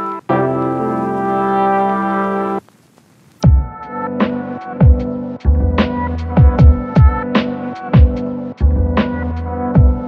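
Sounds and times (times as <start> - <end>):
electronic music: 0.0 - 2.6, 3.4 - 10.0
heavy drum beat: 3.4 - 3.8, 4.8 - 5.1, 5.8 - 8.2.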